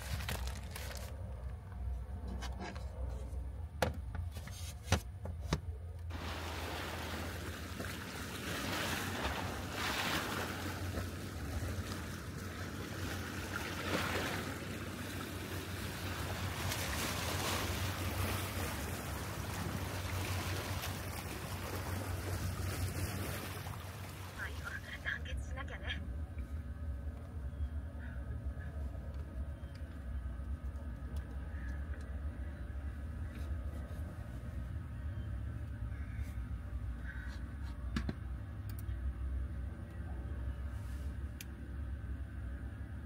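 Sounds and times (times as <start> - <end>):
low steady hum: 0.0 - 43.0
small waves lapping at shore: 6.1 - 25.3.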